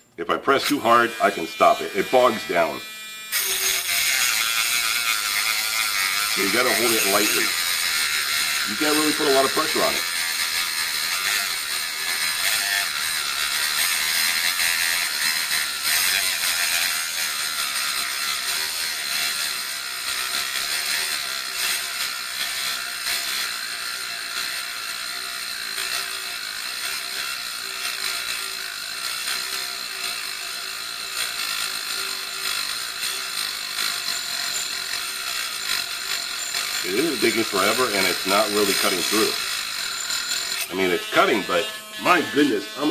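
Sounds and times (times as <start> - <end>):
cut-off wheel grinding metal: 0.5 - 42.9
rotary tool motor whine: 0.7 - 42.9.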